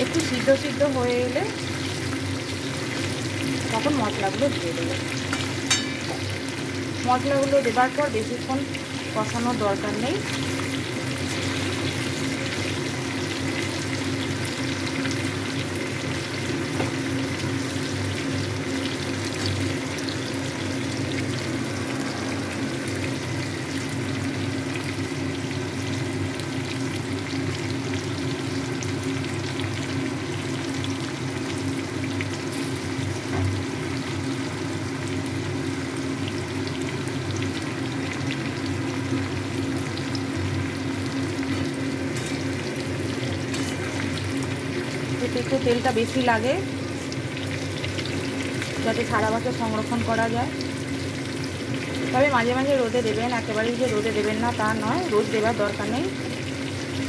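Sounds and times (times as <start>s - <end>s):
frying in hot oil sizzling: 0.0s - 57.0s
low hum: 20.9s - 24.4s.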